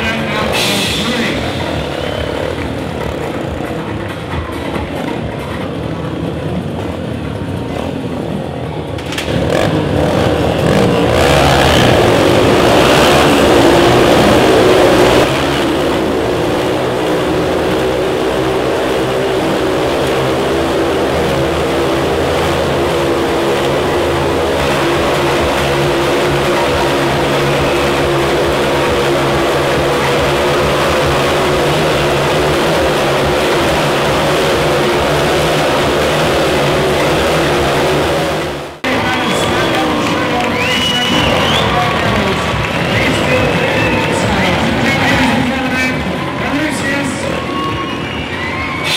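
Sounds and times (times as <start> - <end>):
motorcycle engines revving: 0.0 - 48.9.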